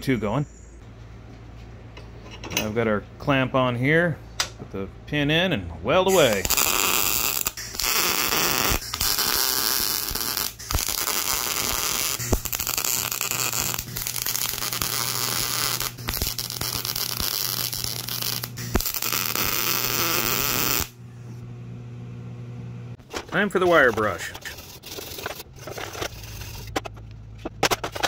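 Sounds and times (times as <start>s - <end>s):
welding arc crackling: 6.1s - 21.0s.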